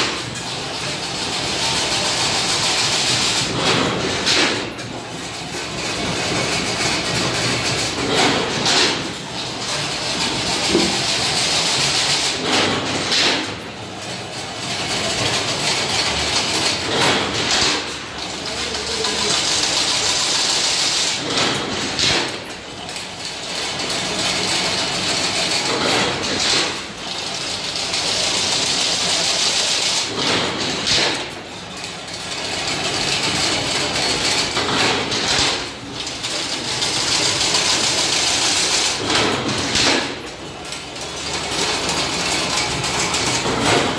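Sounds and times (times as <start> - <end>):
machine clattering: 0.0 - 43.9
heavy machine knock: 5.8 - 13.8, 16.2 - 20.1.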